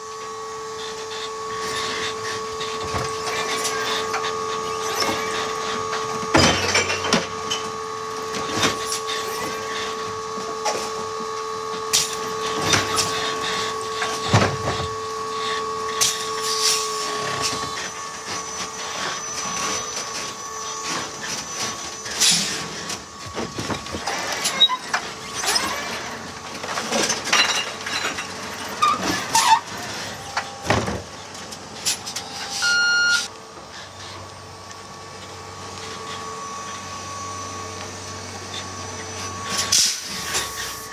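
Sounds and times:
electric drive and hydraulics whine: 0.0 - 40.9
short beep: 32.5 - 33.3.

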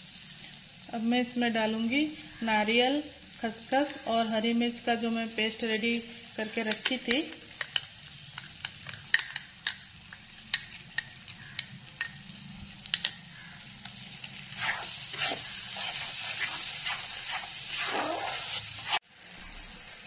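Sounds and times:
spoon clicking against bowl: 6.7 - 14.4
metal spatula scraping wok: 12.9 - 19.0.

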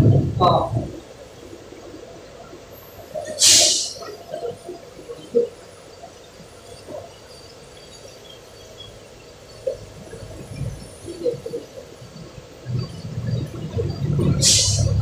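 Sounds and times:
brief loud hissing rush: 3.4 - 4.1, 14.2 - 15.0.

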